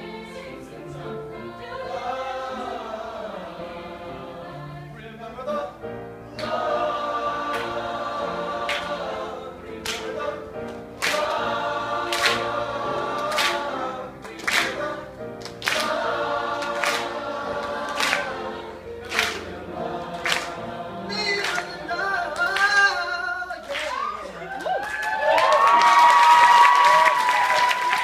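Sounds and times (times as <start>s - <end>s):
mixed choir singing: 0.0s - 23.6s
sharp hand claps: 9.8s - 10.1s, 10.7s - 11.4s, 12.1s - 12.5s, 13.2s - 13.7s, 14.3s - 14.8s, 15.4s - 16.0s, 16.7s - 17.1s, 17.9s - 18.3s, 19.1s - 19.5s, 20.2s - 20.6s, 21.4s - 21.8s, 23.6s - 28.0s
people shouting and cheering: 23.7s - 28.0s.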